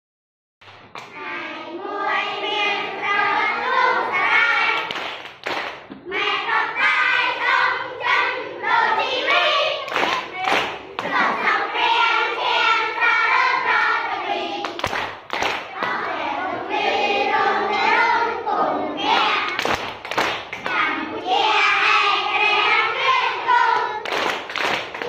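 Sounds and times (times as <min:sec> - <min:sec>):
hand claps: 0:00.6 - 0:01.2, 0:04.5 - 0:06.0, 0:09.9 - 0:11.4, 0:14.6 - 0:16.1, 0:19.2 - 0:20.8, 0:24.0 - 0:25.0
women and children singing: 0:01.0 - 0:05.2, 0:05.9 - 0:19.9, 0:20.6 - 0:25.0.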